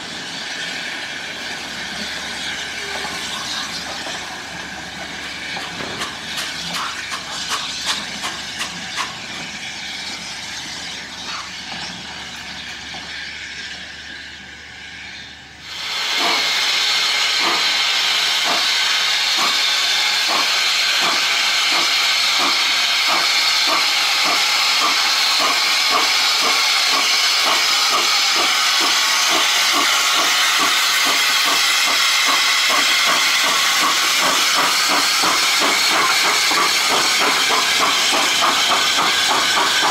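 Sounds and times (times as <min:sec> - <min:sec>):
steam locomotive hissing: 0:00.0 - 0:39.9
wheels clacking over rail joints: 0:01.9 - 0:13.2, 0:19.3 - 0:39.9.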